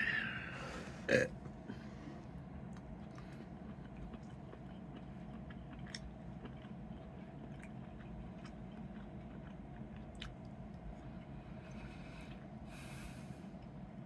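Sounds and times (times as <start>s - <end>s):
steady low hum: 0.0s - 14.0s
person chewing food: 2.2s - 12.5s.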